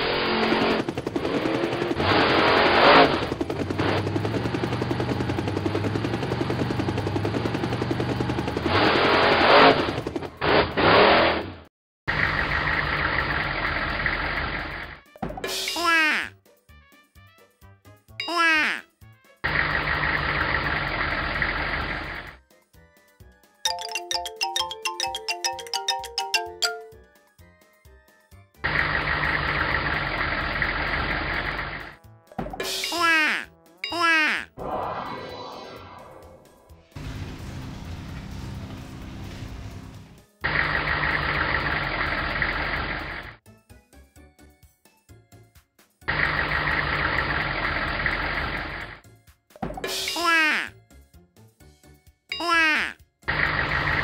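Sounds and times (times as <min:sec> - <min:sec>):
helicopter rotors chopping: 0:00.0 - 0:09.1
monster truck engine revving: 0:00.0 - 0:14.9
cartoon chiming bell notes: 0:23.7 - 0:27.1.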